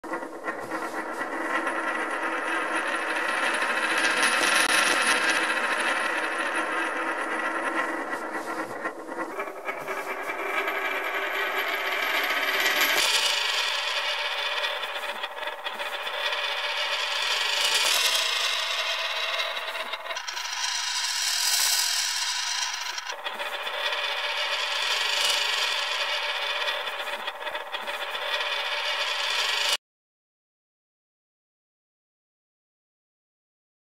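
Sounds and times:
coin spinning on wooden table: 0.1 - 29.8.

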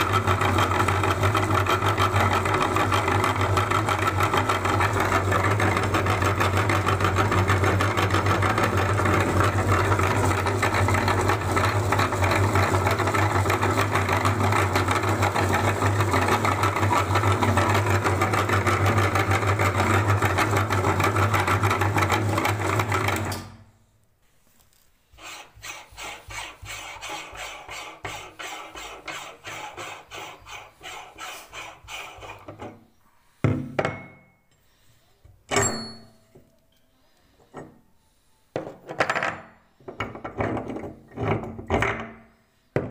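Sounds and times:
meat grinder humming: 0.0 - 23.5
sharp metal knocks: 35.5 - 36.2.

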